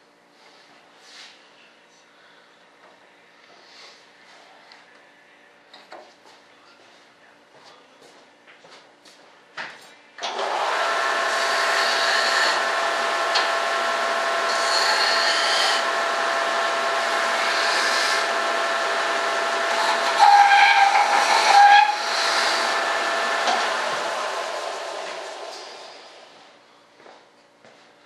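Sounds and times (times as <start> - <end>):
electric machine whine: 10.2 - 26.5.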